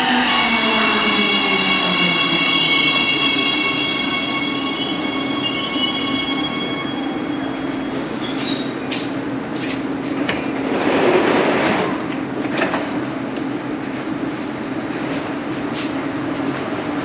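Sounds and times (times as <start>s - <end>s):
high-pitched brake squeal: 0.0s - 9.0s.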